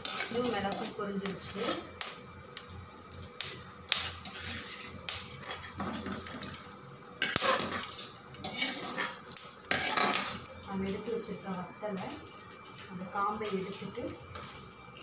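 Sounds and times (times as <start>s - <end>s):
metal ladle scraping a pan: 0.0s - 1.9s, 3.9s - 6.6s, 7.2s - 10.5s.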